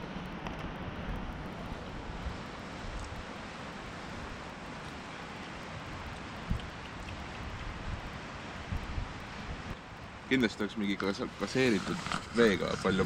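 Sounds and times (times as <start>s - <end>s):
wind buffeting microphone: 5.8s - 9.8s.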